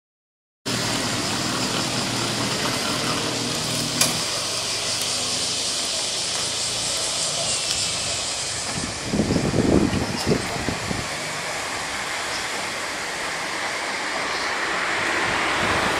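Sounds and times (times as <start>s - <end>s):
vehicle engine running: 0.7s - 13.3s
street noise: 0.7s - 15.9s.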